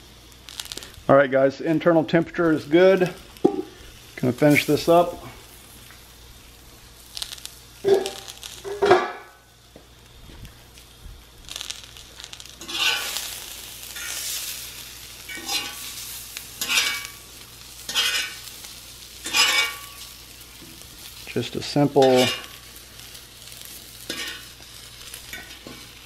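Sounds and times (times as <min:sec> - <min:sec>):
meat and vegetables sizzling: 0:00.0 - 0:26.0
metal fork scraping griddle: 0:12.6 - 0:13.2, 0:15.3 - 0:16.0, 0:16.6 - 0:17.1, 0:17.9 - 0:18.4, 0:19.2 - 0:20.1, 0:22.0 - 0:22.6, 0:24.1 - 0:24.5.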